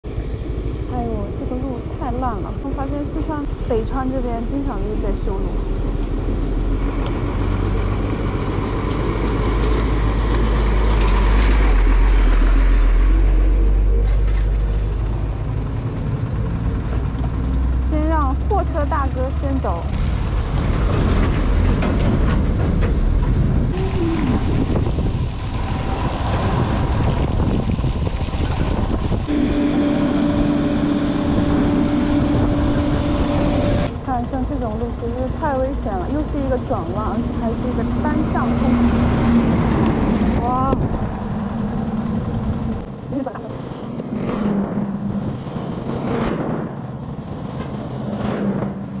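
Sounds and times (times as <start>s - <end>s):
truck engine rumbling past: 0.0s - 49.0s
wind noise on microphone: 19.9s - 35.5s, 36.2s - 43.2s
motorcycle engine running: 23.7s - 38.9s.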